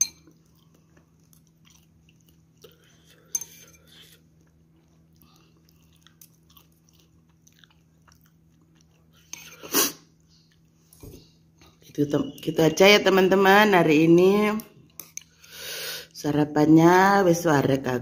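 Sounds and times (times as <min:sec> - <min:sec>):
faint steady hum: 0:00.0 - 0:18.0
person chewing and eating: 0:00.1 - 0:11.8.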